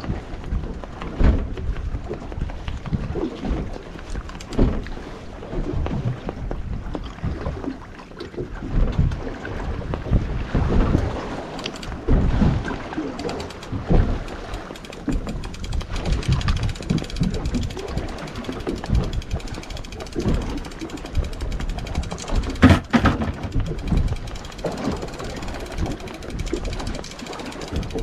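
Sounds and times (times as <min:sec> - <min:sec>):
sea water slapping a boat: 0:00.0 - 0:28.0
thuds on boat: 0:01.2 - 0:01.7, 0:22.6 - 0:24.0
wind buffeting: 0:08.8 - 0:28.0.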